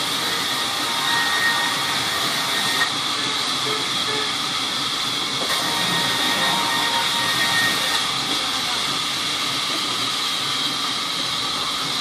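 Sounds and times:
sawmill saw whirring: 0.0s - 12.0s.

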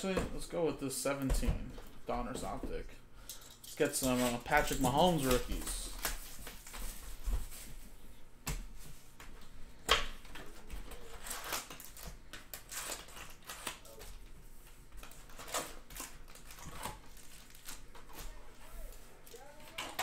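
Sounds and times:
shrink wrap crinkling: 3.8s - 7.6s, 14.9s - 20.0s.

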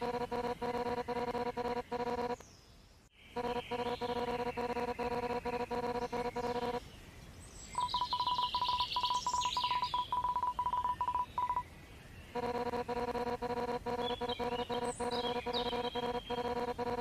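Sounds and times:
buzzy low pulsing tone: 0.0s - 2.4s, 3.4s - 6.8s, 12.4s - 17.0s
short high electronic beeps: 0.0s - 2.4s, 3.4s - 6.8s, 7.8s - 11.6s, 12.4s - 17.0s
higher chirpy sound: 7.8s - 11.6s, 12.4s - 17.0s.

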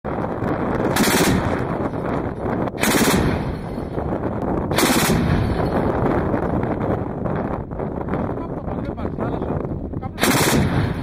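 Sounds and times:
heavy continuous rumble: 0.1s - 11.0s
autocannon firing bursts: 0.8s - 2.0s, 2.8s - 3.9s, 4.7s - 6.0s, 10.2s - 11.0s.

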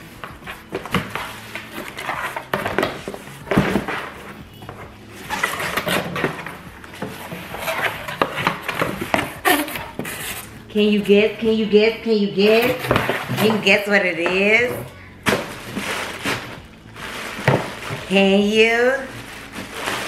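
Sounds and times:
cardboard box scraping and rustling: 0.0s - 10.6s, 15.3s - 18.3s, 19.0s - 20.0s.

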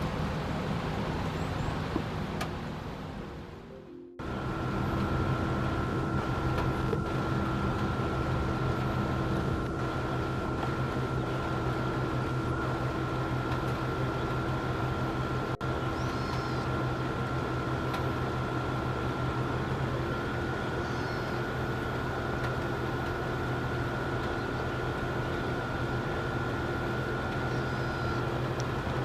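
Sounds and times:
mechanical hum: 0.0s - 29.0s
faint whine: 2.7s - 29.0s
faint high chirp: 15.8s - 16.7s, 27.4s - 28.3s.

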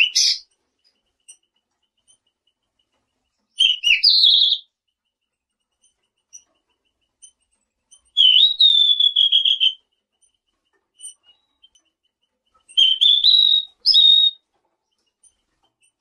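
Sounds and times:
faint bird chips: 0.0s - 16.0s
songbird whistling phrases: 3.6s - 4.7s, 8.2s - 9.8s, 12.8s - 14.4s.

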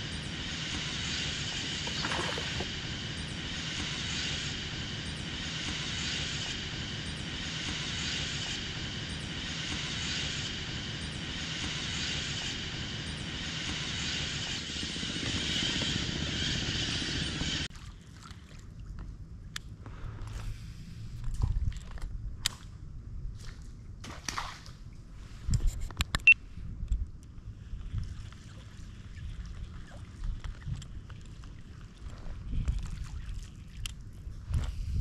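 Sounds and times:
wind buffeting microphone: 26.5s - 35.0s.

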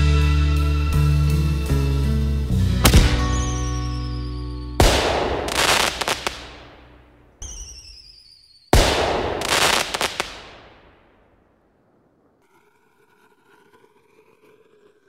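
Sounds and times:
firework bang and crackling: 2.8s - 4.2s, 4.8s - 11.5s.

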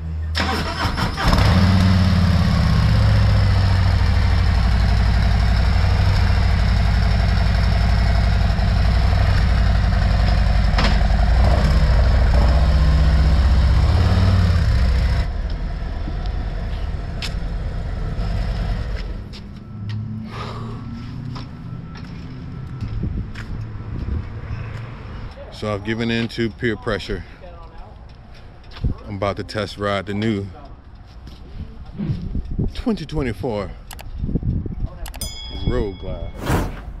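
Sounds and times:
motorcycle engine idling: 3.7s - 11.4s.

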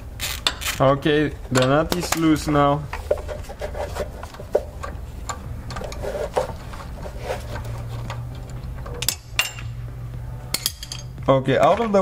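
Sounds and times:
steady low hum: 0.0s - 11.9s
ratchet clicking: 0.2s - 0.8s.

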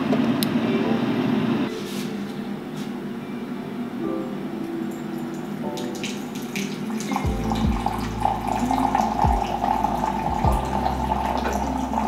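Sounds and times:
coffee pouring into cup: 4.9s - 12.0s.

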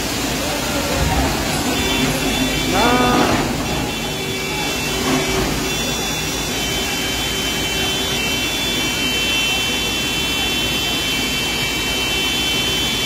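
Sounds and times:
mountain stream rushing: 0.0s - 8.5s
steady high whine: 0.0s - 9.8s
heavy diesel machinery running: 0.0s - 13.0s.

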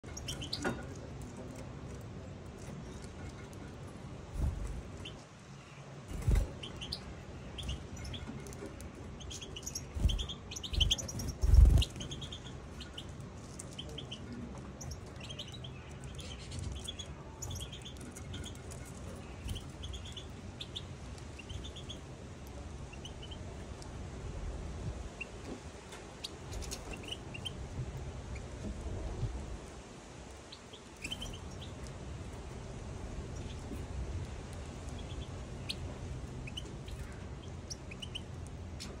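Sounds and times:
finches twittering: 9.2s - 13.1s.

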